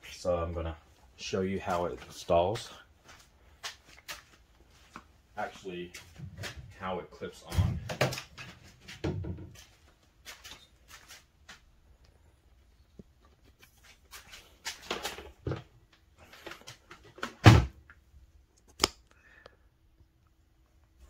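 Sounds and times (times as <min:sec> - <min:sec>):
footsteps walking: 0:00.8 - 0:06.8, 0:08.2 - 0:12.3, 0:13.0 - 0:15.4.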